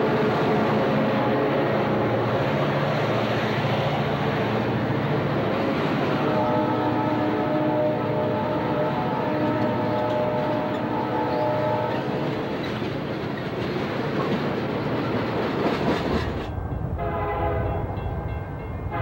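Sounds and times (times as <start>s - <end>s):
train horn: 0.0s - 2.6s, 5.6s - 12.5s, 16.9s - 19.0s
train wheel clatter: 9.4s - 16.7s.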